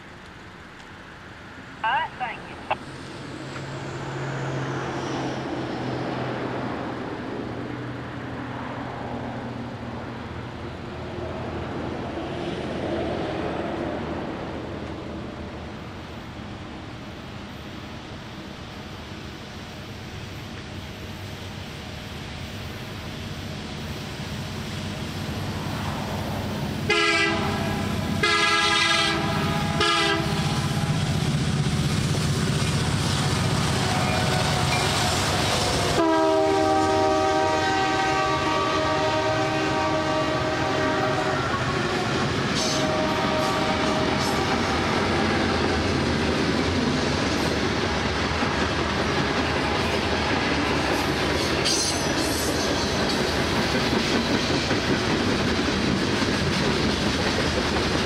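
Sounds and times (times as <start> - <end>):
locomotive rumble: 20.3 - 58.0
locomotive horn blasts: 26.9 - 30.8, 35.8 - 44.6
train wheels clickety-clack: 41.8 - 58.0.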